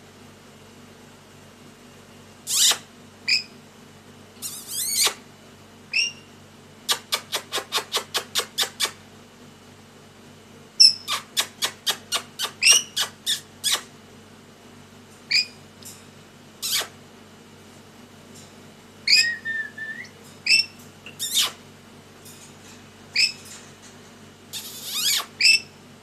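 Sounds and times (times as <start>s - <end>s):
rapid clipped chattering calls: 2.4s - 3.5s, 4.4s - 5.2s, 5.9s - 6.3s, 6.9s - 9.0s, 10.8s - 13.9s, 15.3s - 15.6s, 16.6s - 17.0s, 19.1s - 21.6s, 23.1s - 23.5s, 24.5s - 25.8s
parrot screeching and chirping: 2.5s - 3.5s, 4.4s - 5.2s, 5.9s - 6.3s, 10.8s - 13.9s, 15.3s - 15.6s, 16.6s - 16.9s, 19.1s - 21.6s, 23.2s - 23.4s, 24.5s - 25.7s.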